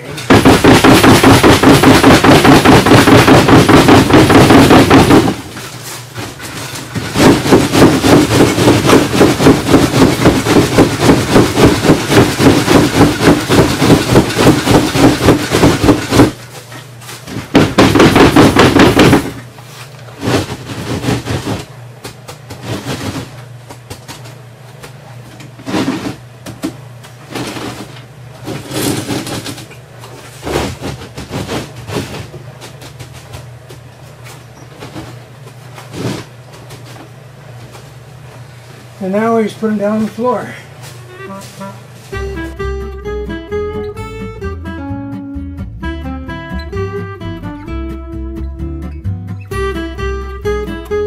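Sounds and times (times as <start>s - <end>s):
molds knocking rapidly: 0.3s - 5.5s, 7.0s - 16.4s, 17.3s - 19.4s, 20.2s - 21.7s.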